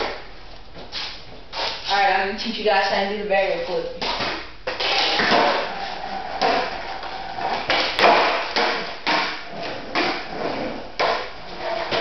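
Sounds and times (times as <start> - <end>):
skateboard wheels rolling on concrete: 4.0 - 12.0
skateboard clacks and knocks: 4.7 - 5.7, 7.4 - 12.0.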